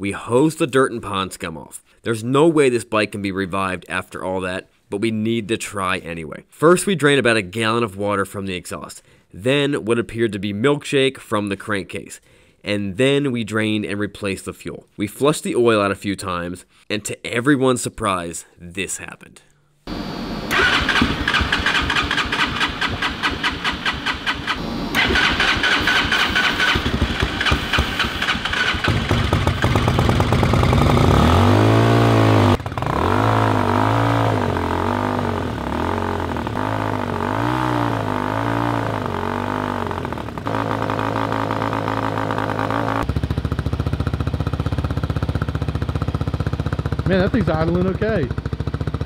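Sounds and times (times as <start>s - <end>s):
motorcycle engine revving and idling: 19.9s - 49.0s.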